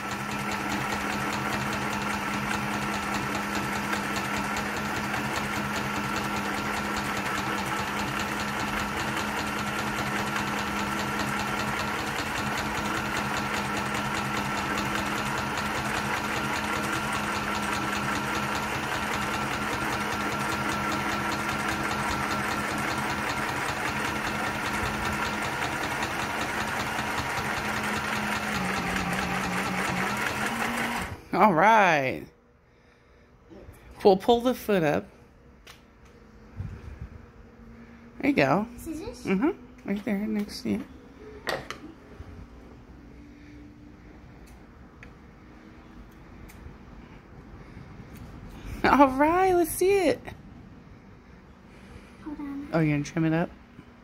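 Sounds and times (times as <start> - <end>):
sewing machine stitching: 0.0 - 31.2.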